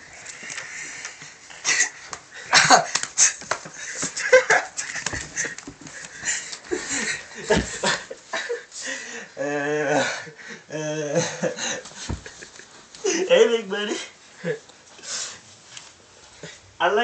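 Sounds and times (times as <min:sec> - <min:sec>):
boys laughing wheezily: 0:01.5 - 0:13.4.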